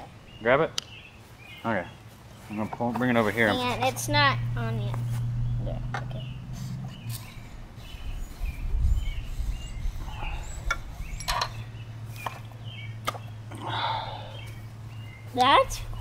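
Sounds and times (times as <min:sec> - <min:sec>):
birds chirping: 0:00.0 - 0:16.0
wind rumble on microphone: 0:05.2 - 0:12.0.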